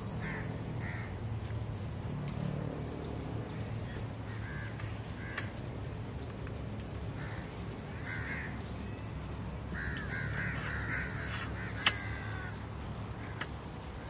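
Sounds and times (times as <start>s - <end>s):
crows cawing: 0.2s - 1.2s, 3.5s - 6.0s, 7.1s - 9.1s, 9.7s - 13.8s
tent poles clicking together: 1.5s - 2.8s, 4.0s - 8.5s, 9.1s - 14.0s.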